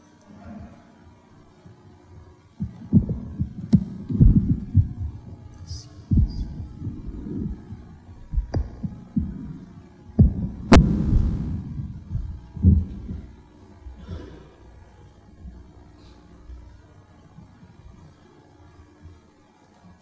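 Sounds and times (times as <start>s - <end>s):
microphone handling thumps: 2.6s - 5.2s, 6.1s - 9.6s, 10.2s - 13.4s
microphone clicks: 8.3s - 9.5s, 10.2s - 13.3s.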